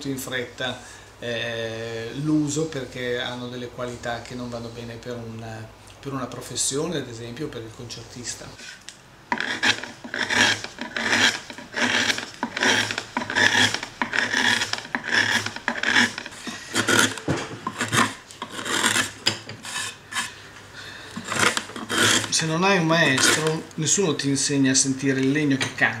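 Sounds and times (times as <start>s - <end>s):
hand tool scraping wood: 8.4s - 20.4s, 21.0s - 23.7s.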